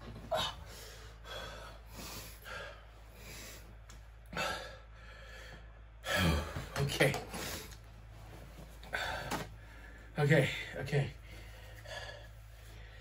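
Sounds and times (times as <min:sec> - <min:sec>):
man breathing hard and gasping: 0:00.3 - 0:06.7, 0:08.8 - 0:10.2, 0:11.2 - 0:13.0.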